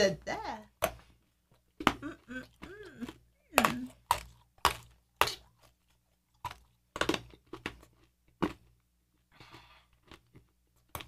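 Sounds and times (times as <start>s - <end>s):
hard toffee crunching when chewed: 1.8s - 8.8s, 9.4s - 11.0s.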